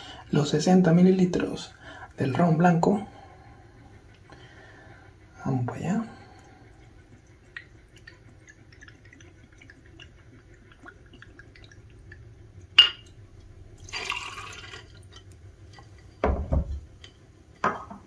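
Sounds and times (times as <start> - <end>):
liquid trickling into metal cup: 7.3 - 13.2, 13.8 - 15.3.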